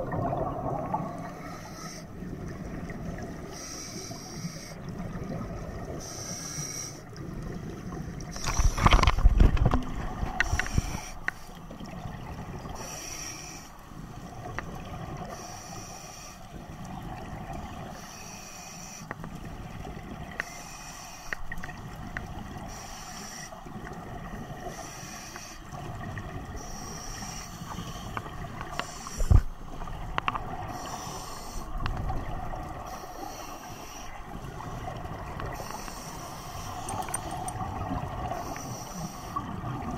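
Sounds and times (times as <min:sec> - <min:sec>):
bubbling exhalations: 0:00.0 - 0:01.4
hissing regulator inhalations: 0:01.2 - 0:02.2, 0:03.5 - 0:04.9, 0:06.0 - 0:07.0, 0:10.4 - 0:11.6, 0:12.8 - 0:13.8, 0:15.3 - 0:16.5, 0:17.9 - 0:19.2, 0:20.4 - 0:21.5, 0:22.7 - 0:23.6, 0:24.7 - 0:25.7, 0:26.6 - 0:29.6, 0:30.7 - 0:31.8, 0:32.8 - 0:37.5, 0:38.3 - 0:39.5.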